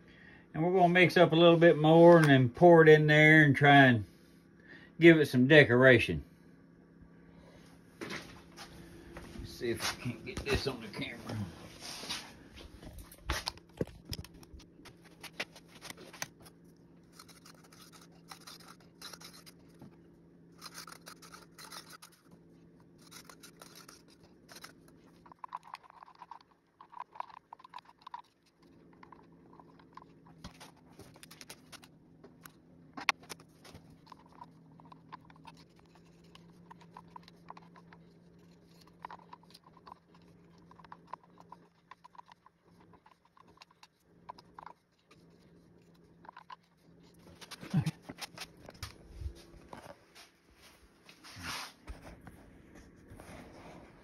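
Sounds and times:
faint steady hum: 0.0 - 54.0
stir stick scraping plastic cup: 14.9 - 19.8, 20.5 - 48.8.

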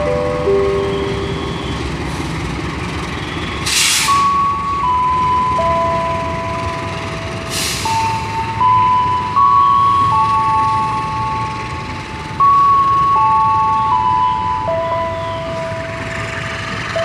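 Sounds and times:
electronic chime melody: 0.0 - 2.0, 4.2 - 7.3, 7.9 - 16.1
train rumbling: 0.0 - 17.0
air hissing: 3.6 - 4.2.

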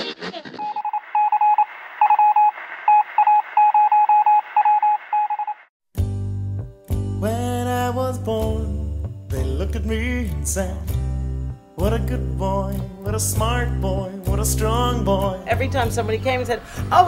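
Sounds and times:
electronic beeps: 0.6 - 5.7
music with deep bass: 6.0 - 17.0.

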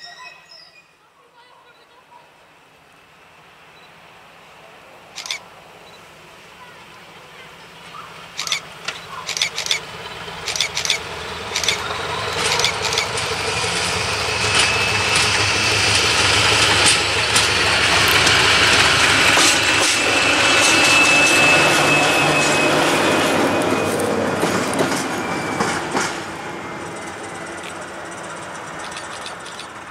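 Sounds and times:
wheels squealing on rails: 0.0 - 1.9, 5.2 - 6.0, 6.6 - 29.9
diesel locomotive engine running: 2.4 - 29.9
sharp clicks: 5.2 - 5.4, 8.4 - 13.3, 28.8 - 29.8.

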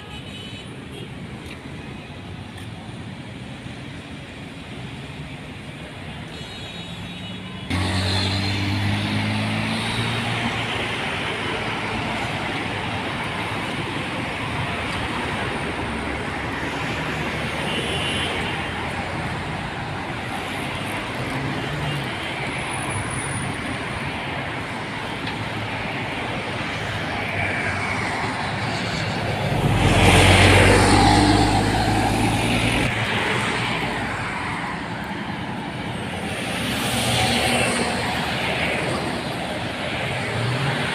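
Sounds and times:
cars passing: 7.6 - 40.9
loud vehicle passing close by: 28.8 - 32.9.

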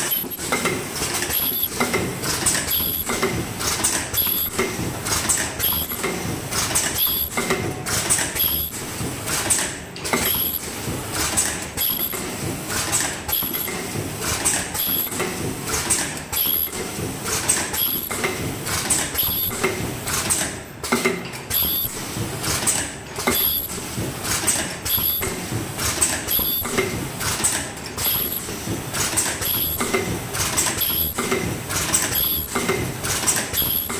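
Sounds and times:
mechanical rattle: 0.0 - 33.9
pneumatic clacks: 0.0 - 33.9.

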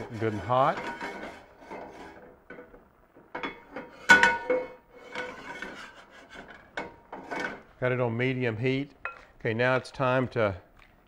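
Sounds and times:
skillet scraping on grate: 0.0 - 7.7.

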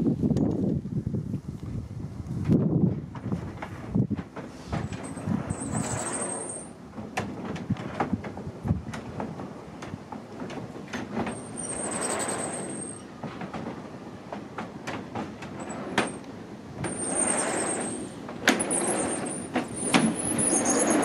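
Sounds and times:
wooden shutters rolling rumble: 2.4 - 21.0
high squeak: 5.0 - 6.7, 11.4 - 13.1, 16.9 - 21.0.

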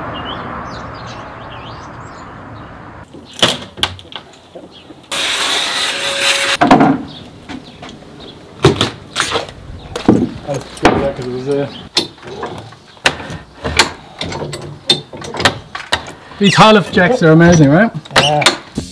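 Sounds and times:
wooden knocks: 10.0 - 11.3.

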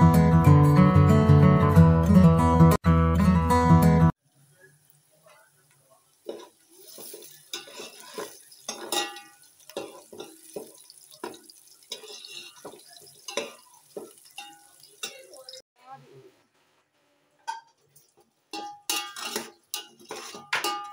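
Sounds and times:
onions frying hiss: 4.2 - 15.6
metal spoon scraping a pot: 6.2 - 15.6, 18.5 - 20.9.

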